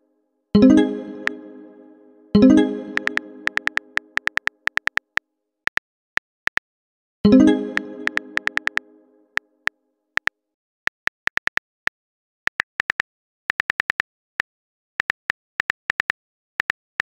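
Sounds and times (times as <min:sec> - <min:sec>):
keyboard typing clicks: 0:02.8 - 0:05.0, 0:07.3 - 0:08.9.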